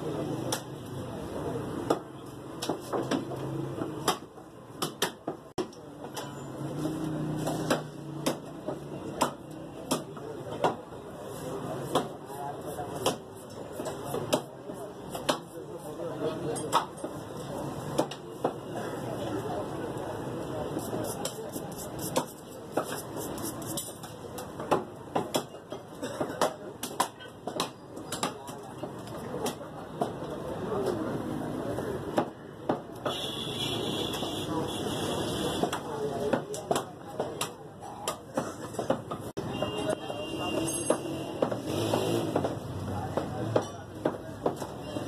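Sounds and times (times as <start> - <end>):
cleaver chopping meat on wood: 1.8 - 5.8, 7.4 - 10.9, 11.8 - 12.2, 12.9 - 15.6, 17.9 - 18.7, 24.4 - 28.6, 35.6 - 39.3, 40.5 - 44.8.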